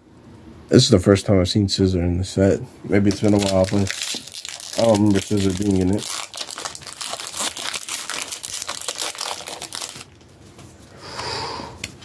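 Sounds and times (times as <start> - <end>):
foil wrapper crinkling: 3.0 - 10.3.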